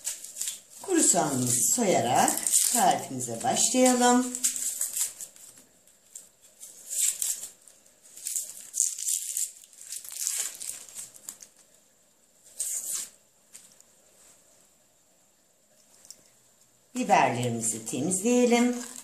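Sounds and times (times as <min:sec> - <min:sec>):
dry onion skin crackling: 0:00.0 - 0:11.8, 0:18.0 - 0:19.0.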